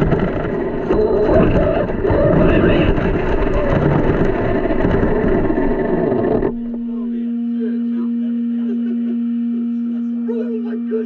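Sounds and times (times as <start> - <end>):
wind on microphone: 0.0 - 6.9
toy truck motor noise: 0.0 - 7.7.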